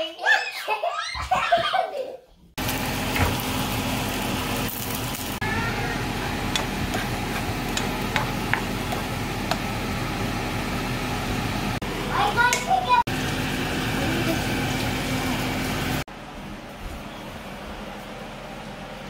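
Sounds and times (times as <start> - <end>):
eggs sizzling in a frying pan: 2.6 - 11.8.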